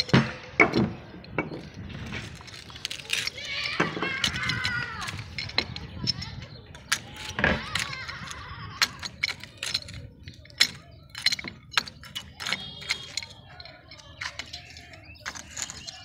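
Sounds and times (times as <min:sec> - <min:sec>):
pipe joint squeaks: 0:00.0 - 0:16.0
pipe wrench metallic clicks: 0:06.8 - 0:16.0.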